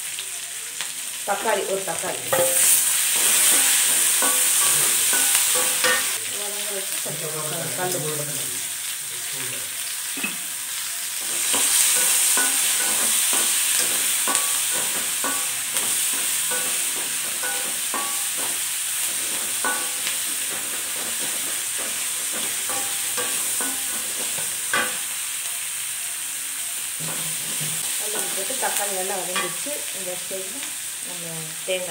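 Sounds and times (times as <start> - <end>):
onions sizzling in oil: 0.0 - 31.9
metal spatula scraping pan: 2.3 - 6.2.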